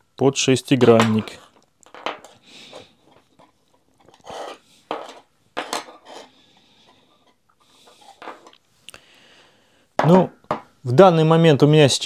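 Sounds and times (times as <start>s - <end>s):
hex keys knocking on wooden table: 1.0s - 2.4s, 4.9s - 6.0s.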